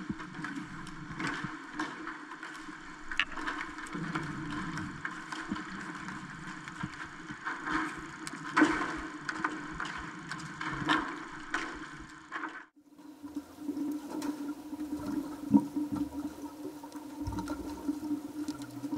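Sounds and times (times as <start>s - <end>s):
underwater hum and hiss: 0.0s - 18.9s
clicks and knocks: 3.1s - 3.6s.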